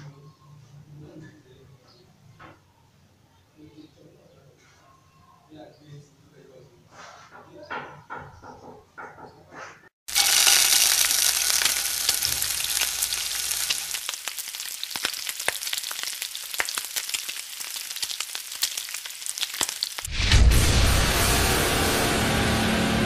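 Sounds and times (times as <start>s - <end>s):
food sizzling in oil: 10.1s - 20.2s
sharp crackling pops: 10.1s - 20.2s.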